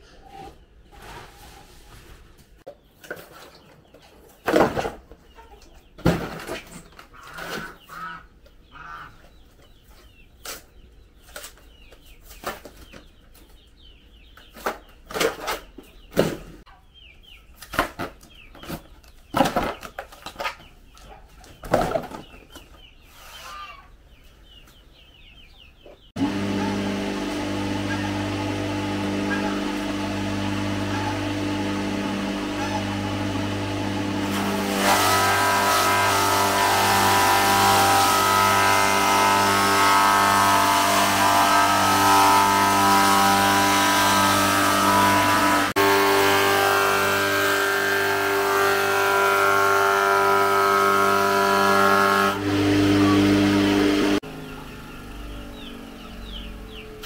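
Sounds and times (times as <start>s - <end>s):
chickens clucking: 5.1s - 6.0s, 20.4s - 26.7s, 29.3s - 29.8s, 30.9s - 31.2s, 32.6s - 32.9s.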